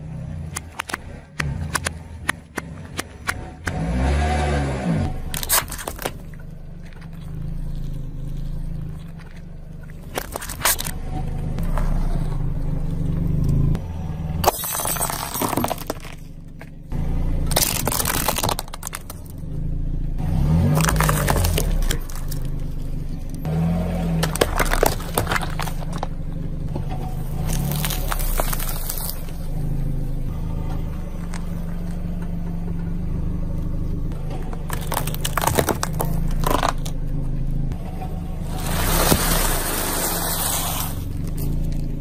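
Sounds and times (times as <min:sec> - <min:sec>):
car engine running: 0:00.0 - 0:42.0
tyre crushing plastic objects: 0:05.2 - 0:07.4, 0:09.0 - 0:11.0, 0:14.4 - 0:16.8, 0:17.4 - 0:19.4, 0:20.6 - 0:26.2, 0:26.8 - 0:29.4, 0:34.2 - 0:37.0, 0:38.4 - 0:42.0.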